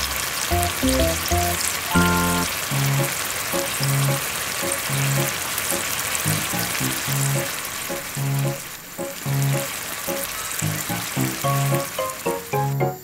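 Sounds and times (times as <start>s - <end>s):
dough sizzling in hot oil: 0.0s - 13.0s
light background music: 0.5s - 5.4s, 7.2s - 13.0s.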